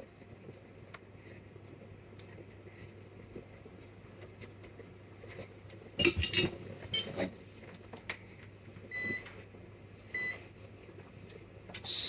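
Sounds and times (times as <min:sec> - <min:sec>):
metal tools clattering: 0:06.0 - 0:07.1.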